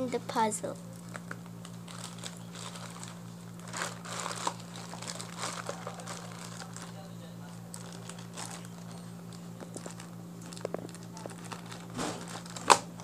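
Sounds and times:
plastic bag crinkling: 0.9 - 13.0
scissors cutting plastic: 9.6 - 13.0.

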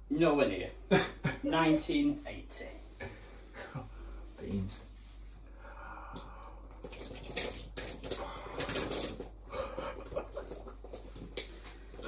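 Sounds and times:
wet splats of beans: 6.2 - 9.4.

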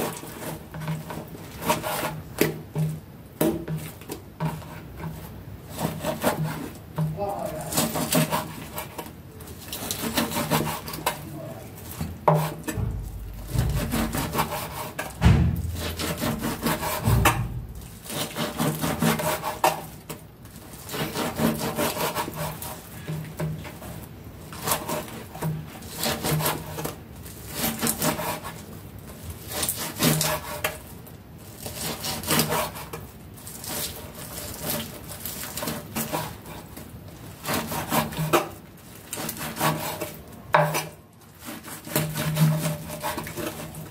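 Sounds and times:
knife slicing on cutting board: 11.9 - 20.0
dull thumps: 12.0 - 18.1.

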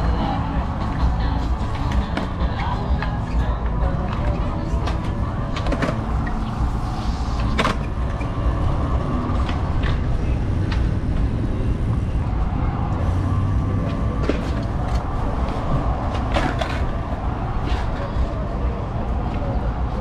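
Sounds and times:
city street traffic rumble: 0.0 - 20.0.

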